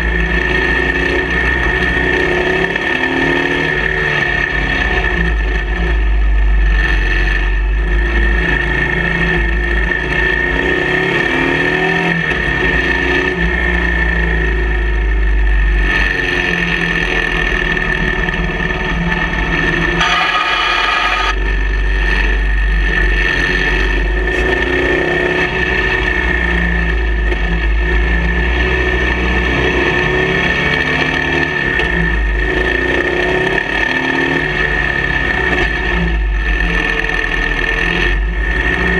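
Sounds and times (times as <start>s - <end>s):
motorcycle engine revving: 0.0s - 38.9s.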